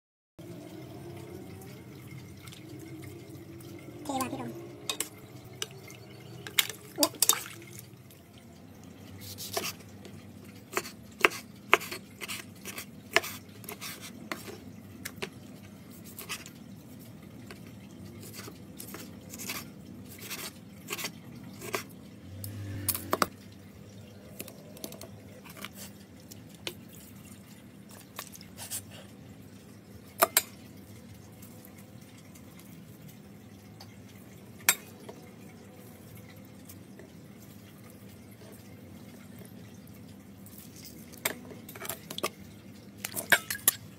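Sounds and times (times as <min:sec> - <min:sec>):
liquid dripping: 0:00.4 - 0:43.9
utensils clinking on metal pot: 0:43.0 - 0:43.9.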